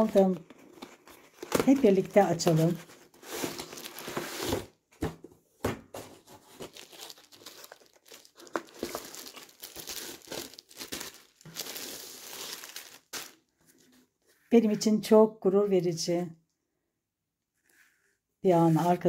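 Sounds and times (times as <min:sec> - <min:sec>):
plastic shrink wrap crinkling: 0:00.0 - 0:04.6, 0:06.2 - 0:14.1.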